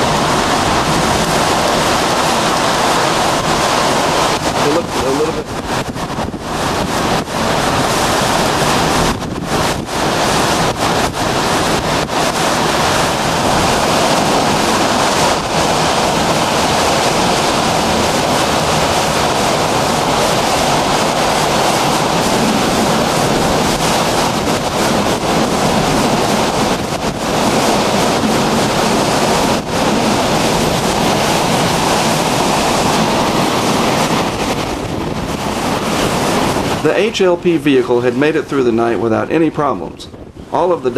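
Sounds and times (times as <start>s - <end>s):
driving rain: 0.0s - 40.9s
strong wind: 0.0s - 40.9s
wind buffeting microphone: 0.0s - 40.9s.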